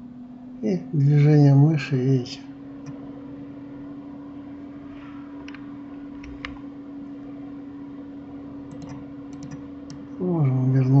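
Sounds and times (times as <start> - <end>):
room hum and hiss: 0.0 - 11.0
mouse and keyboard clicks: 8.7 - 9.6.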